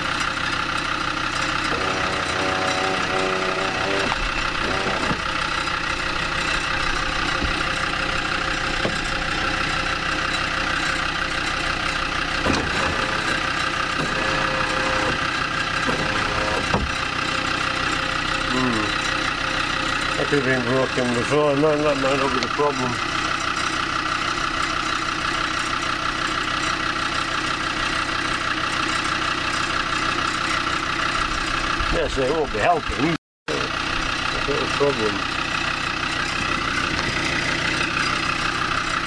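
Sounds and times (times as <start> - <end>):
mechanical drone: 1.4 - 19.1.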